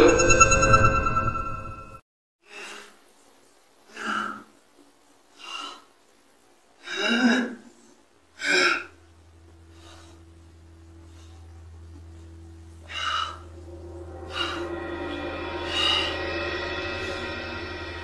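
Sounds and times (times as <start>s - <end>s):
young man breathing hard: 12.8s - 17.3s.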